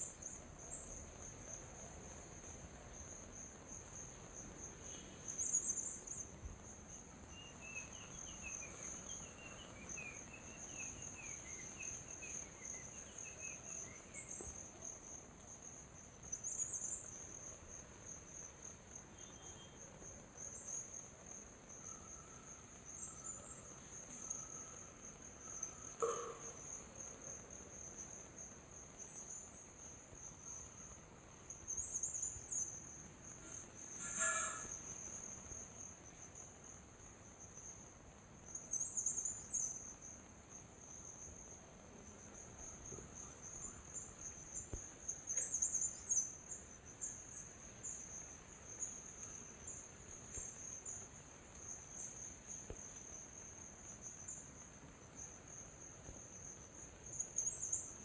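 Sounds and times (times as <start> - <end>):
insects chorus: 0.0 - 58.0
faint bird chirps: 7.2 - 14.8, 19.1 - 20.9, 21.8 - 27.2, 31.6 - 35.4.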